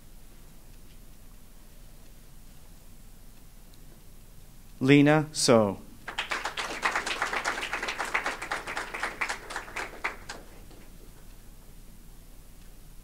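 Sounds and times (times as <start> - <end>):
audience applause: 6.0 - 11.2.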